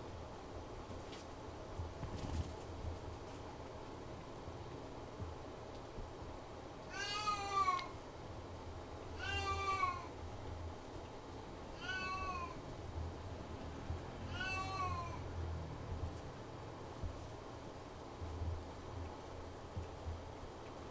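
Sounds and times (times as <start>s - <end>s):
cat meowing: 6.9s - 7.9s, 9.2s - 10.1s, 11.7s - 12.6s, 14.2s - 15.2s.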